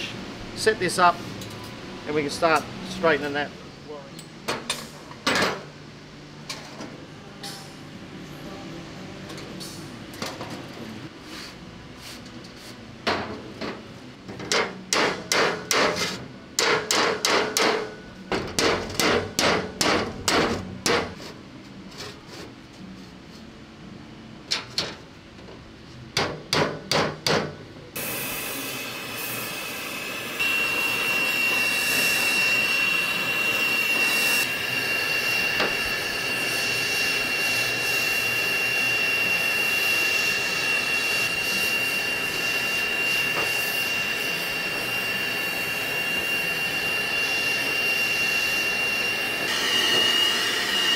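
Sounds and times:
gas torch hissing: 28.0 - 50.9.

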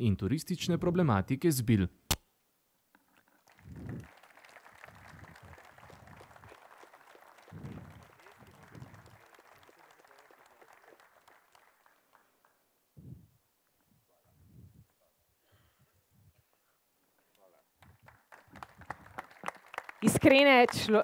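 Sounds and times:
audience applauding: 3.4 - 12.7, 17.8 - 21.0.

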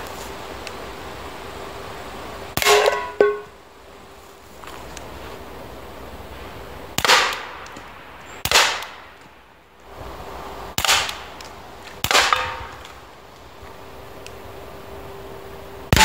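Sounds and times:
air pistol shots: 2.6 - 3.3, 7.0 - 7.7, 8.4 - 9.0, 10.8 - 11.3, 12.0 - 12.8.

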